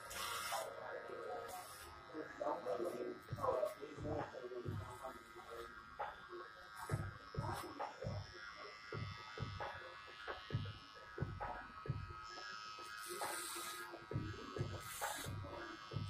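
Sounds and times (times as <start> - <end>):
electric hair clippers buzzing: 0.0 - 16.0.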